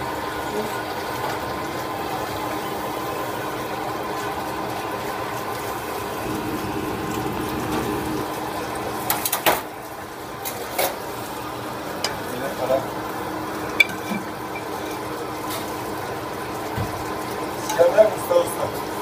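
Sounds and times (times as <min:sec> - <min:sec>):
running hiss: 0:05.7 - 0:09.9
faint hum: 0:06.0 - 0:09.0.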